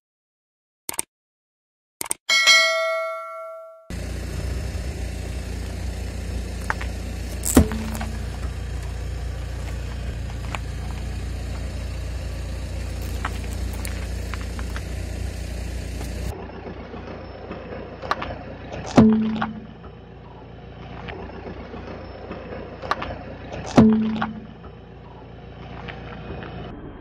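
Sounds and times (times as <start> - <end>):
tyre creeping over grit: 3.9 - 16.3
car engine idling: 3.9 - 26.4
gravel clicks: 4.8 - 19.5
clay piece cracking: 6.6 - 8.1.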